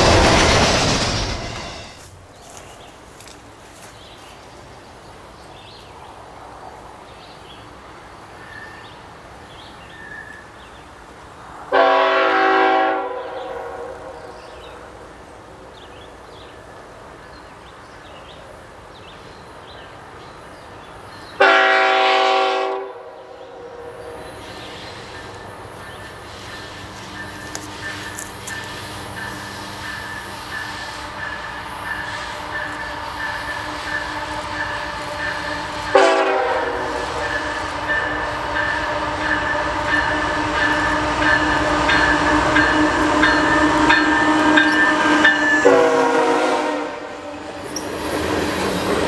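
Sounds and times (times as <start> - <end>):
locomotive air horn blasts: 11.7 - 14.2, 21.4 - 24.2, 30.7 - 47.4.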